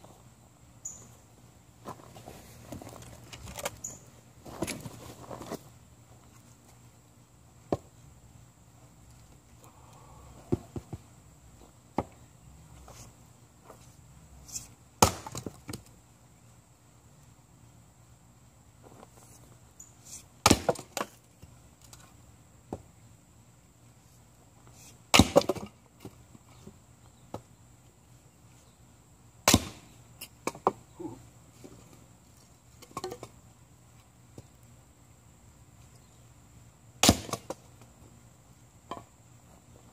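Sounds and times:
axe chopping wood: 15.0s - 15.8s, 20.4s - 21.1s, 25.1s - 25.7s, 29.4s - 30.8s, 37.0s - 37.6s.

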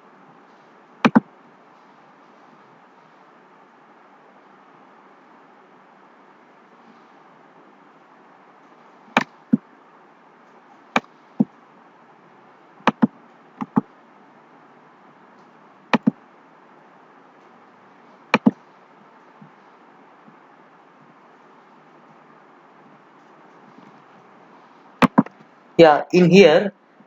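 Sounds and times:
microphone hiss: 0.0s - 27.0s
mouse button clicks: 15.9s - 16.1s.

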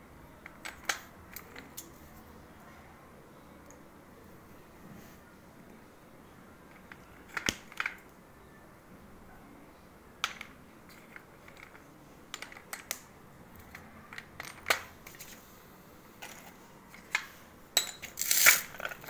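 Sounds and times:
clay pieces clinking on steel: 17.8s - 19.0s.

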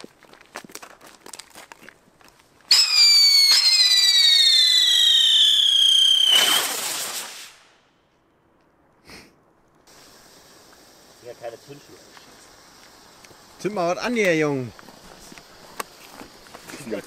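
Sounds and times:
crackling burst of sparks: 2.7s - 7.9s
firework whistling: 2.7s - 7.9s.

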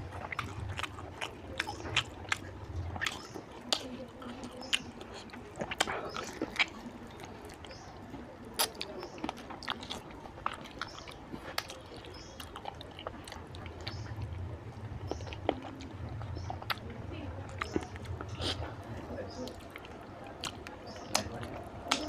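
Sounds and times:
low steady hum: 0.0s - 8.5s
close chewing: 0.0s - 22.0s
mouth clicks: 8.5s - 22.0s.

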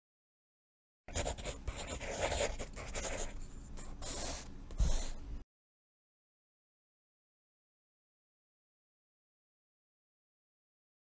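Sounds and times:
pen scratching on drawing surface: 1.1s - 5.2s.

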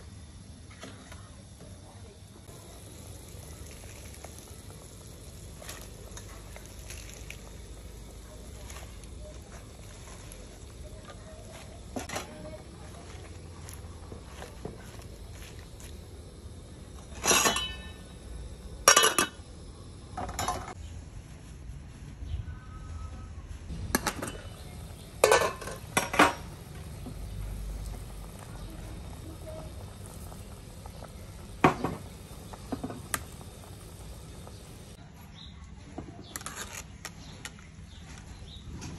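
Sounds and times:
ladle clanking against metal pot: 17.1s - 18.0s, 23.9s - 26.5s.

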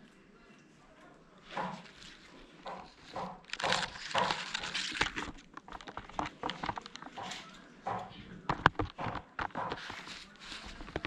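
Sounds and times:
fur rubbing against microphone: 9.8s - 11.0s.

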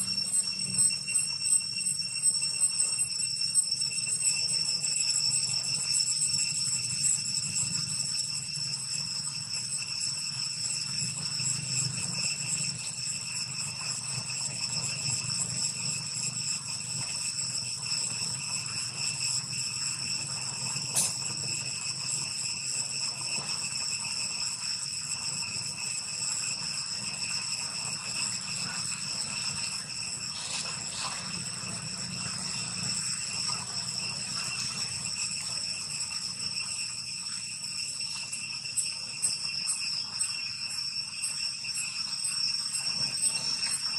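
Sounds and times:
insects droning: 0.0s - 43.9s.

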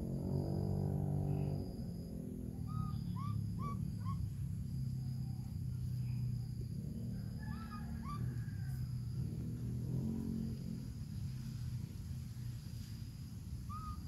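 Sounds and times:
steady low hum: 0.0s - 14.0s
short chirping animal calls: 2.6s - 4.4s, 13.7s - 14.0s.

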